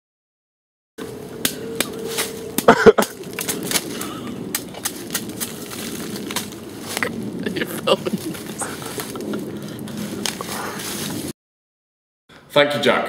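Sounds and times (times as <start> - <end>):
dry leaves and twigs crackling underfoot: 1.0 - 11.3.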